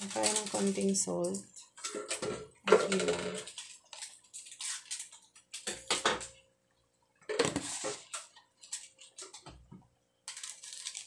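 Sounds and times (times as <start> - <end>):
kitchen utensils clattering: 1.8 - 3.6.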